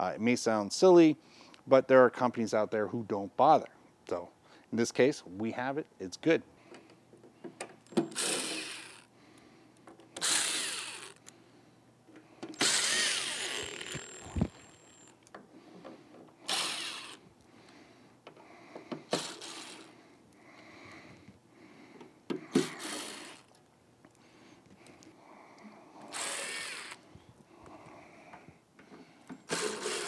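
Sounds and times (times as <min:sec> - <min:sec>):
cordless drill whirring: 0:07.9 - 0:09.1, 0:10.2 - 0:11.3, 0:12.6 - 0:15.3, 0:16.4 - 0:17.3, 0:19.0 - 0:20.0, 0:22.5 - 0:23.6, 0:26.0 - 0:27.0, 0:29.4 - 0:30.0.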